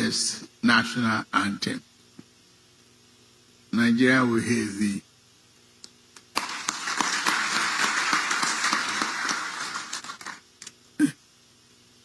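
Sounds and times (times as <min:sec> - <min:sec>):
audience applause: 0:06.3 - 0:10.4.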